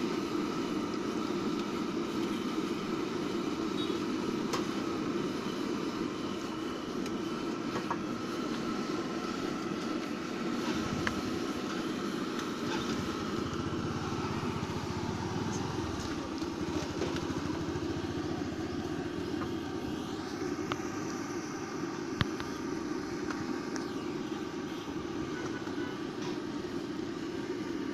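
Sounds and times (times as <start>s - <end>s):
hot oil sizzling: 0.0s - 25.4s
motorbike engine rumble: 6.4s - 27.3s.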